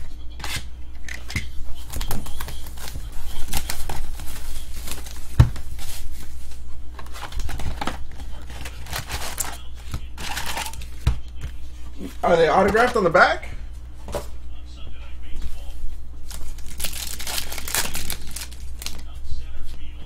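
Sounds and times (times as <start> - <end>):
plastic wrap crinkling and tearing: 1.8 - 6.2, 7.0 - 10.9, 16.3 - 19.1.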